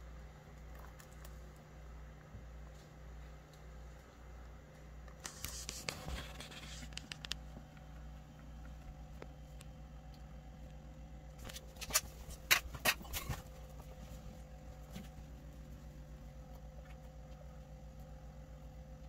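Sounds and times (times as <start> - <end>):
low hum: 0.0 - 19.0
sharp scratching clicks: 5.1 - 9.3.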